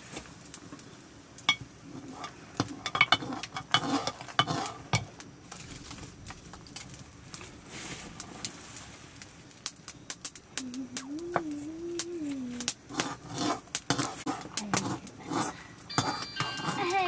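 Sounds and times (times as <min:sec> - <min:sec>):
metal spoon scraping pot: 0:01.5 - 0:05.1, 0:12.9 - 0:17.0
music: 0:15.9 - 0:17.0.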